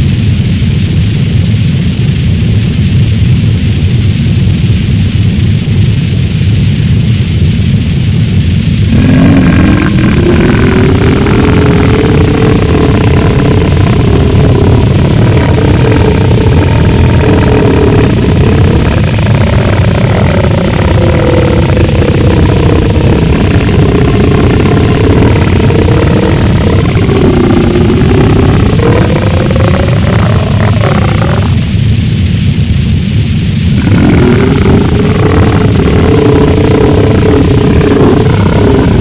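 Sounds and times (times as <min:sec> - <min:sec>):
distorted rumbling noise: 0:00.0 - 0:39.0
wavering tones: 0:08.9 - 0:31.8.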